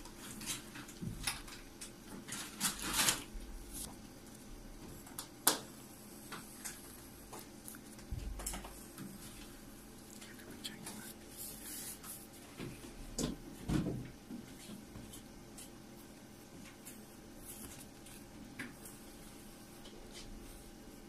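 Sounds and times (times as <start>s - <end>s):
pencil scratching on paper: 10.7s - 12.3s.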